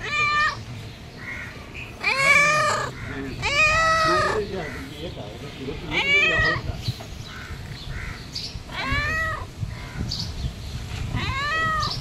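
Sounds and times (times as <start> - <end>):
cat meowing: 0.0 - 0.7, 2.0 - 4.4, 5.9 - 6.7, 8.7 - 9.5, 11.1 - 12.0.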